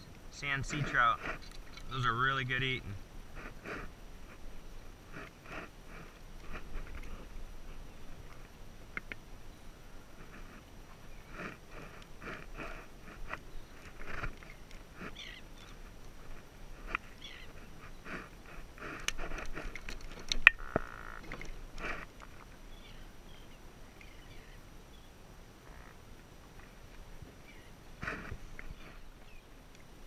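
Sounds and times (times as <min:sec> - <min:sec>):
hands handling a fish: 0:10.2 - 0:22.5.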